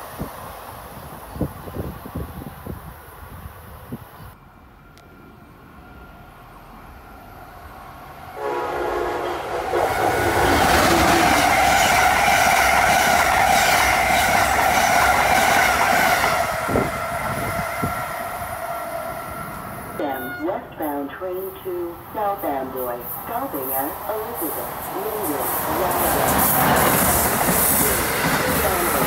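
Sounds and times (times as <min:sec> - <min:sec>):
train rushing and rattling past: 0:00.0 - 0:29.0
train horn chord: 0:08.4 - 0:11.2.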